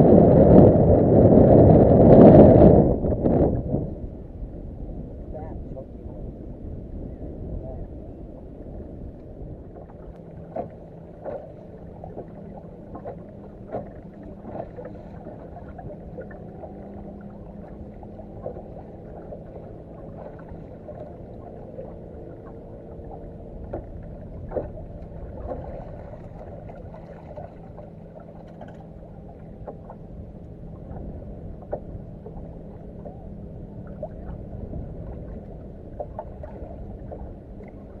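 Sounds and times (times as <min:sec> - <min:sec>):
low steady hum: 0:00.0 - 0:38.0
water lapping against boat hull: 0:00.0 - 0:38.0
small splashes: 0:09.8 - 0:30.0.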